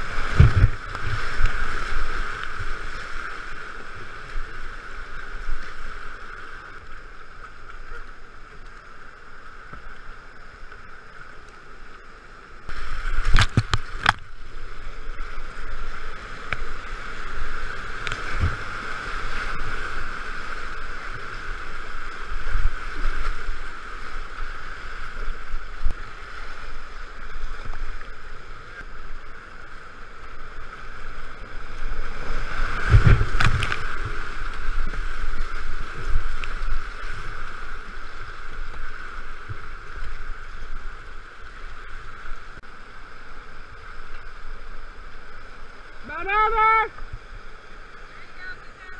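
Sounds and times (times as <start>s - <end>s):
water splashing against kayak: 0.0s - 48.9s
whitewater rushing: 12.7s - 48.9s.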